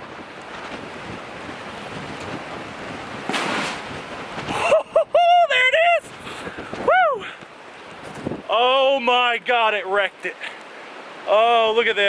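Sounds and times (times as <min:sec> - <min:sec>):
wind buffeting microphone: 0:00.0 - 0:09.8
shotgun shot: 0:03.3 - 0:03.8
person exclaiming: 0:04.5 - 0:06.1, 0:06.8 - 0:07.4.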